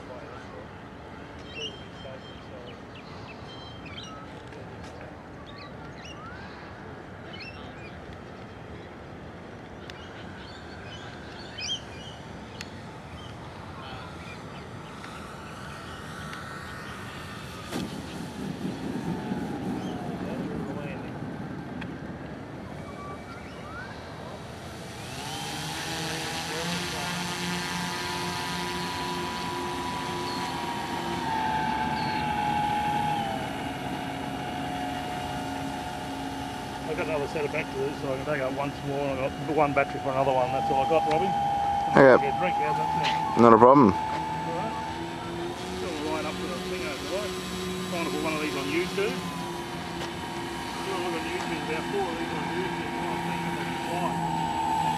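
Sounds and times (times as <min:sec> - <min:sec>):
outdoor background noise: 0:00.0 - 0:54.9
bird chirping: 0:01.4 - 0:04.4, 0:09.8 - 0:13.4, 0:29.8 - 0:32.9
model plane motors whining: 0:10.0 - 0:54.9.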